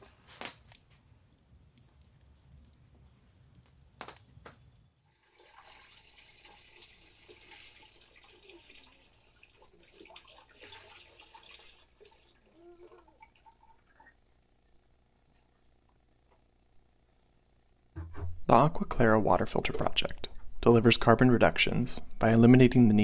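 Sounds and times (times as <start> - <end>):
water pouring into tank: 5.1 - 14.0.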